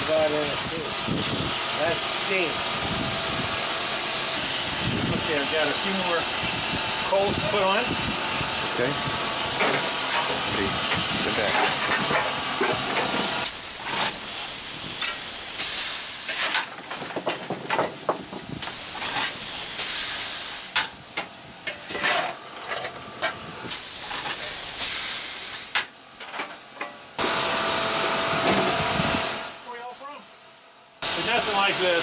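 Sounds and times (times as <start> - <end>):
steam hissing loudly: 0.0 - 16.6, 18.0 - 20.8, 23.6 - 25.8, 27.2 - 29.6, 31.0 - 32.0
coal shovelling clanks and scrapes: 8.8 - 21.0, 21.6 - 27.1.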